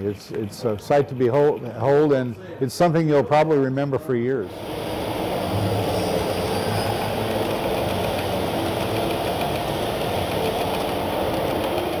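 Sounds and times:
model train rumbling on track: 4.5s - 12.0s.

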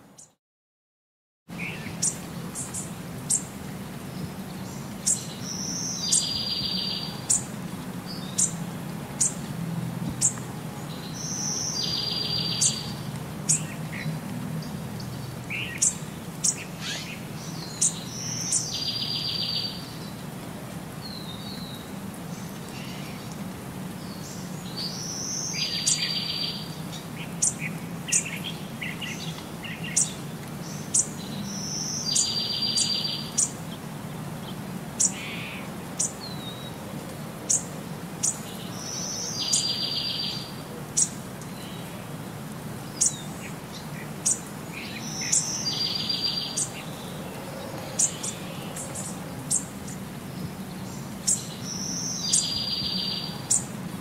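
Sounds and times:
small birds chirping: 1.5s - 20.3s, 21.0s - 36.8s, 37.4s - 53.8s.

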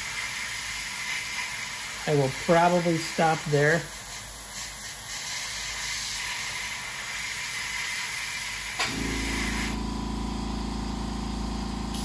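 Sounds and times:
airbrush hissing: 0.0s - 9.9s
air compressor motor running: 5.6s - 12.0s.

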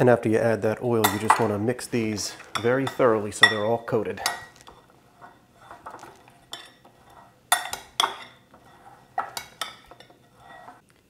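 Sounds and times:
metal spoon scraping glass bowl: 2.4s - 10.8s.

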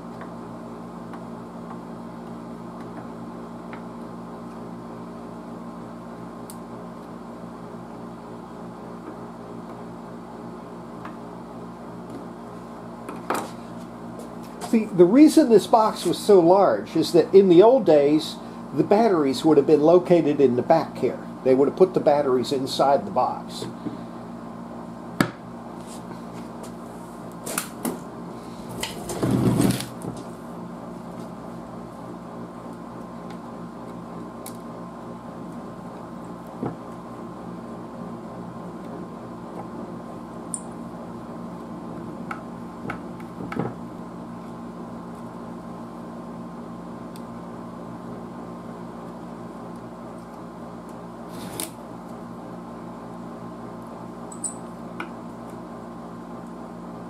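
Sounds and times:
steady background hum: 0.0s - 57.0s
rustling scrape: 51.3s - 51.6s.

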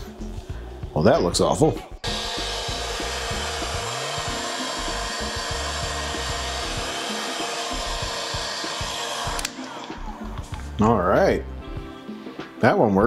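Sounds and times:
heat gun blowing: 2.0s - 10.1s.

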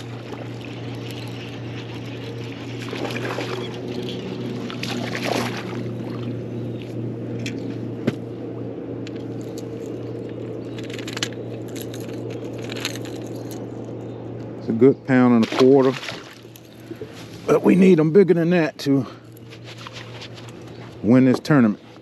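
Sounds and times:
fish splashing at water surface: 0.0s - 6.3s
steady low hum: 0.0s - 22.0s.

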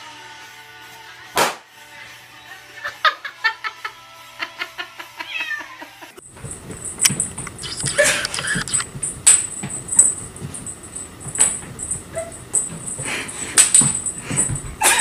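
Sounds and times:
light background music: 0.0s - 8.4s
balloon popping: 1.4s - 1.6s
cat meowing: 5.2s - 5.8s.

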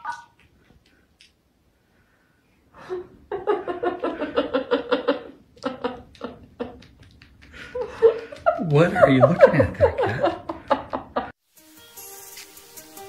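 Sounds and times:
person laughing: 2.8s - 11.3s.

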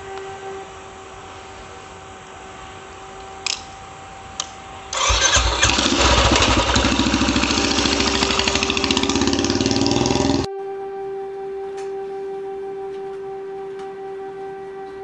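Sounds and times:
motorbike engine running: 5.0s - 10.5s.

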